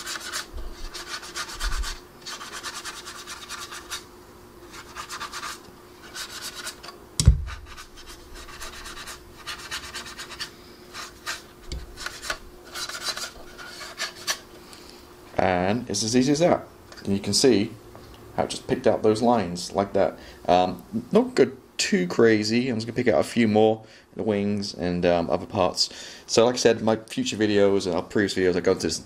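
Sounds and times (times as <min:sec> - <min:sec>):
paintbrush rubbing on plastic: 0:00.0 - 0:06.8, 0:07.5 - 0:14.4
faint steady hum: 0:00.0 - 0:29.0
single knock: 0:07.2 - 0:07.5.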